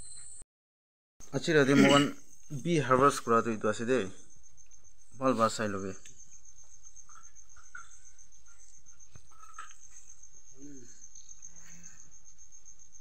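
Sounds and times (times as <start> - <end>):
insect trilling: 1.3 - 13.0.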